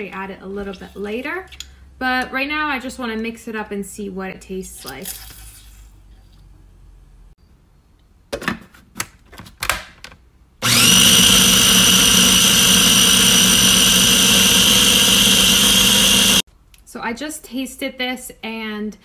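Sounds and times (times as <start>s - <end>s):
food processor motor whine: 10.6s - 16.4s.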